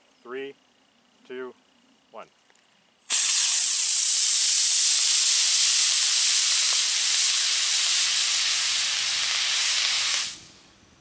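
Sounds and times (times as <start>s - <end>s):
rocket motor hissing: 3.1s - 10.8s.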